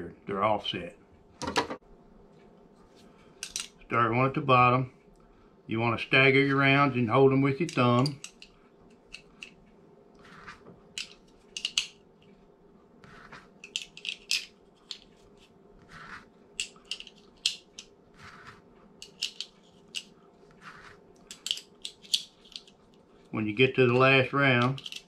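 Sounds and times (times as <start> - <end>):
metal cartridges clicking: 3.4 - 3.8, 7.6 - 9.6, 11.0 - 12.0, 13.6 - 15.1, 16.6 - 17.9, 19.0 - 20.1, 21.2 - 22.8, 24.5 - 25.0
soft metal rubbing: 10.2 - 11.5, 13.0 - 13.9, 14.7 - 17.4, 18.1 - 21.7.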